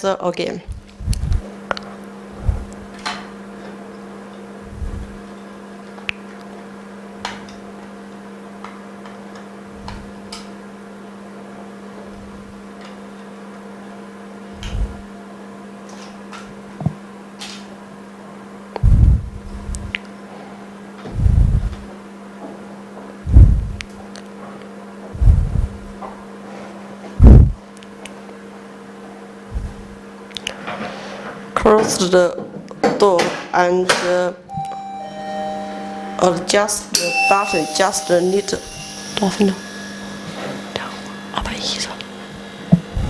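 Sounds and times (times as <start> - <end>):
workshop machine hum: 34.5 - 43.0.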